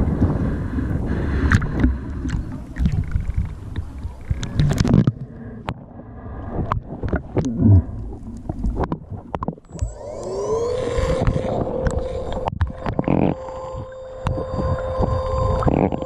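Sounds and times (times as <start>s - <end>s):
underwater motor whine: 9.6s - 16.0s.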